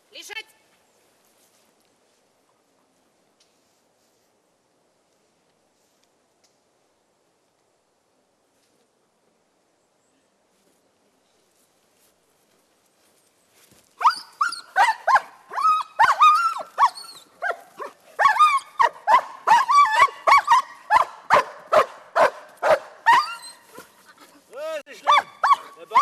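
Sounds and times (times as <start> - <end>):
dog barking excitedly: 14.0 - 23.9, 25.0 - 26.0
dog yelping: 14.0 - 24.0, 25.0 - 26.0.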